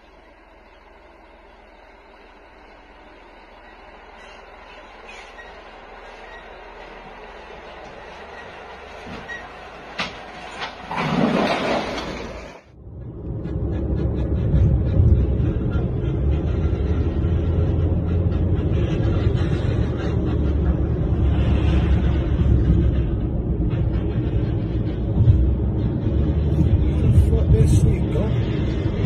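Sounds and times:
car road and wind rumble: 11.8s - 29.0s.

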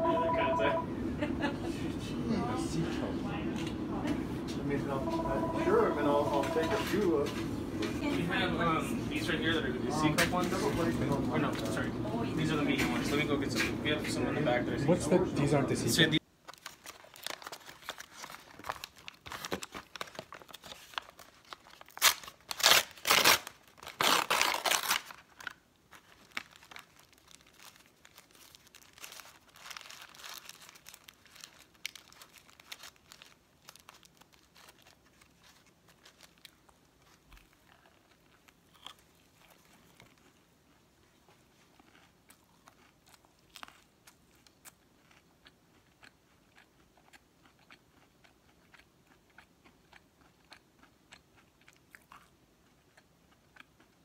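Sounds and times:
paper and foil wrapper crinkling: 5.2s - 7.6s, 16.2s - 40.5s.

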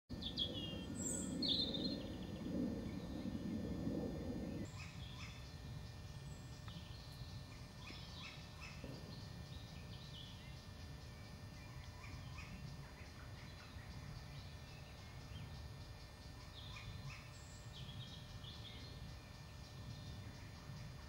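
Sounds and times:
high falling bird calls: 0.1s - 5.5s
birds chirping and trilling: 0.1s - 21.0s.

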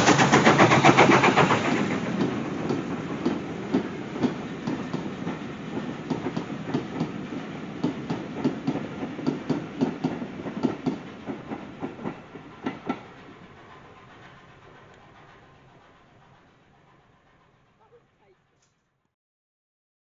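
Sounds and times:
train wheels clicking over rail joints: 0.0s - 18.0s
train rumble: 0.0s - 18.9s.

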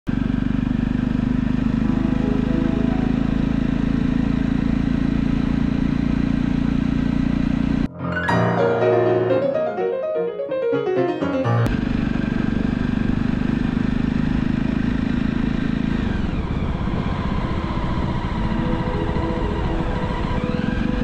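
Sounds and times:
motorcycle engine running: 0.1s - 7.9s, 11.7s - 21.0s
piano music: 1.6s - 5.2s, 7.9s - 11.7s, 18.4s - 21.0s.

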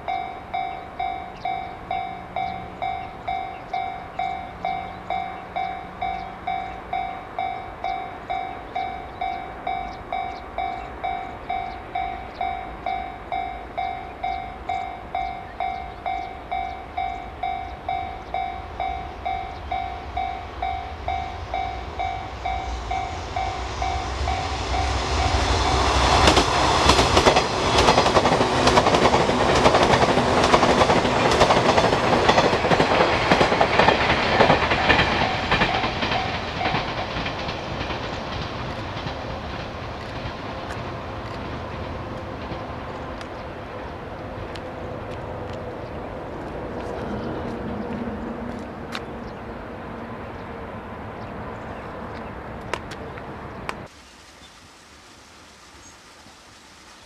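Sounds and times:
level crossing alarm ringing: 0.0s - 25.4s
wheels clacking over rail joints: 0.0s - 49.4s
train passing: 0.0s - 54.0s.

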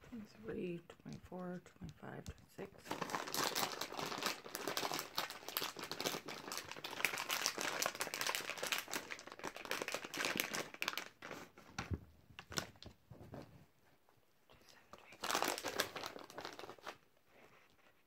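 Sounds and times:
plastic bag crinkling: 2.6s - 12.9s, 15.0s - 17.0s.

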